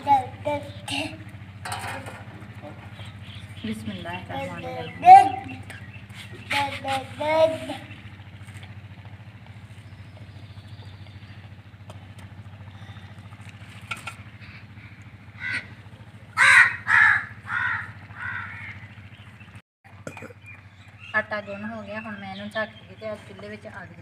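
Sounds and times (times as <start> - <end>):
steady low hum: 0.0 - 24.0
crow cawing: 15.3 - 18.9.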